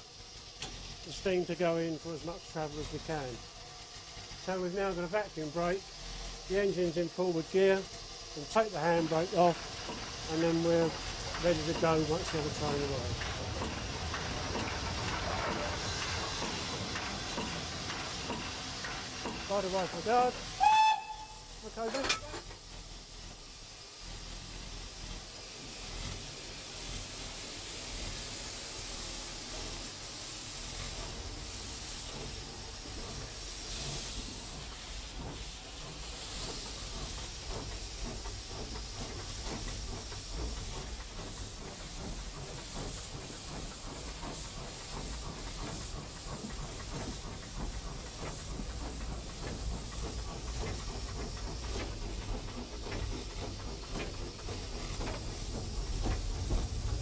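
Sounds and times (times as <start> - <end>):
locomotive running rumble: 0.0 - 57.0
steam hissing: 0.0 - 57.0
rail clatter: 8.6 - 21.1, 30.9 - 57.0.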